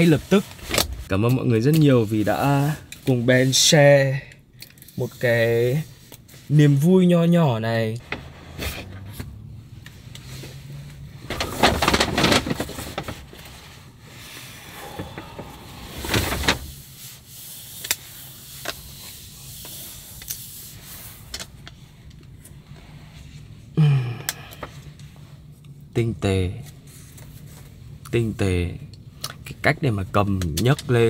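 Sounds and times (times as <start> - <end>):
paper and cardboard rustling: 11.2 - 13.8, 14.8 - 17.3.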